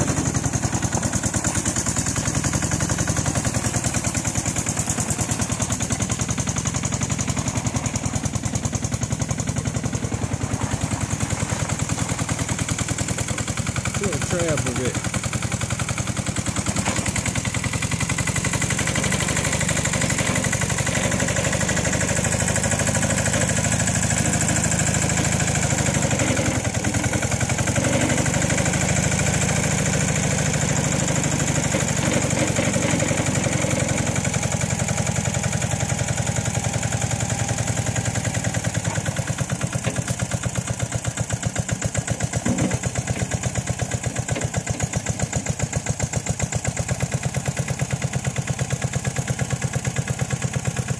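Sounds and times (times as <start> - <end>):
diesel engine chugging: 0.0 - 50.9.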